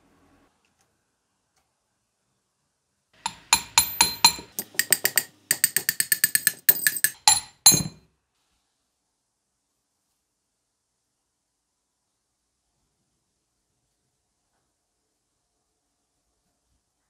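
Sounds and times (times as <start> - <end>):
metal rod striking metal cylinder: 3.2 - 8.0.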